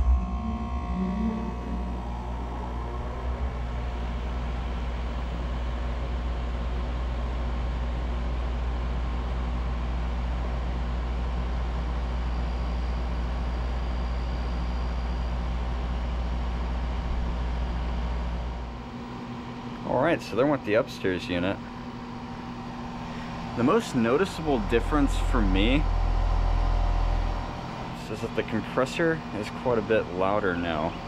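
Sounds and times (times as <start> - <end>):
fan motor winding up: 0.0 - 5.8, 18.5 - 31.0
compressor hum: 0.0 - 31.0.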